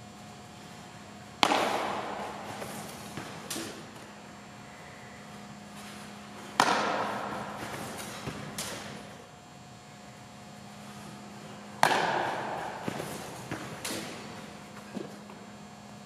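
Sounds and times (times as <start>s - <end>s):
sharp cracks of baseball impact: 1.4s - 4.5s, 5.9s - 9.2s, 11.1s - 14.7s.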